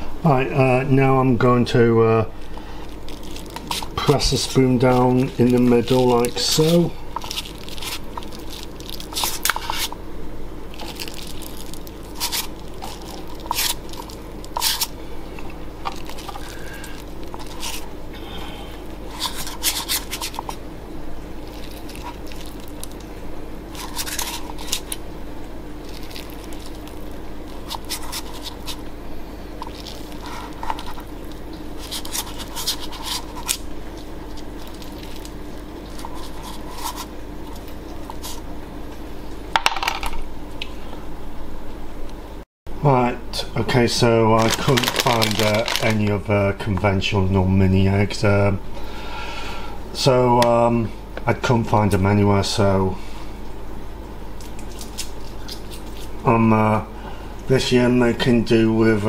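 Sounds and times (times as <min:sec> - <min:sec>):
steady low hum: 0:00.0 - 0:59.0
spoon scraping sticky mixture: 0:03.1 - 0:10.0, 0:10.8 - 0:17.9, 0:19.0 - 0:20.6, 0:21.4 - 0:23.0, 0:23.7 - 0:25.0, 0:25.8 - 0:28.9, 0:29.6 - 0:38.4.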